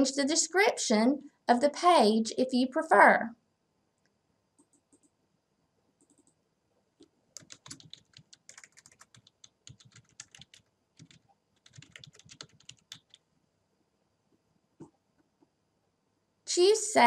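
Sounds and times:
typing on a computer keyboard: 4.6 - 5.2, 6.0 - 6.4, 7.4 - 13.3.

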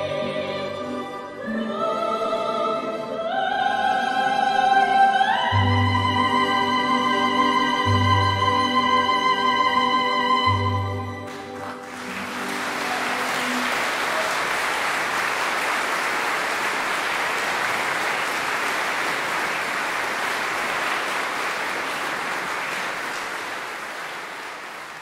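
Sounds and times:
audience applauding: 11.2 - 25.0.

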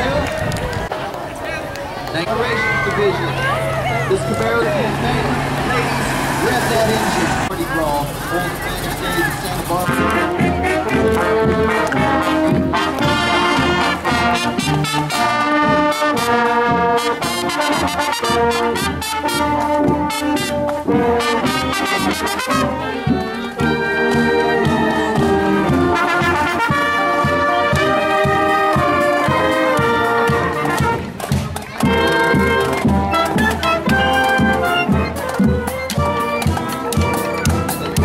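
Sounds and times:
marching band playing: 0.3 - 38.0.

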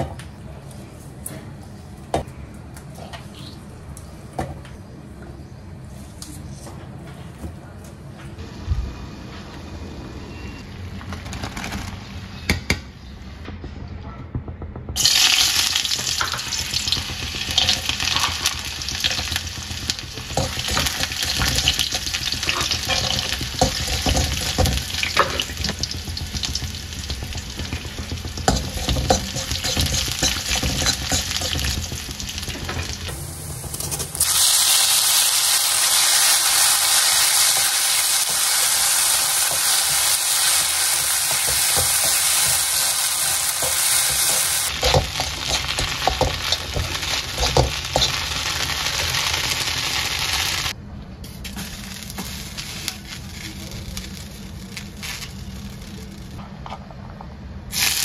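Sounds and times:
nuts sizzling in hot oil: 15.0 - 50.8, 51.5 - 56.4
vegetables sizzling: 15.0 - 50.8, 51.4 - 56.4, 57.7 - 58.0
water boiling: 15.0 - 50.8
spatula stirring: 15.9 - 33.1, 39.5 - 49.6.

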